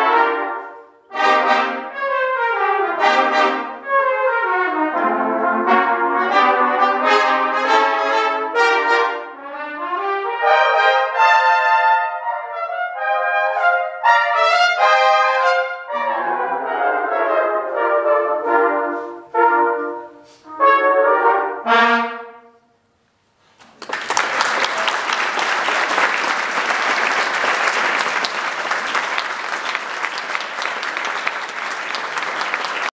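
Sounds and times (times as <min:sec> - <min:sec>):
brass band playing swing: 0:00.0 - 0:22.5
audience applauding: 0:23.6 - 0:32.9.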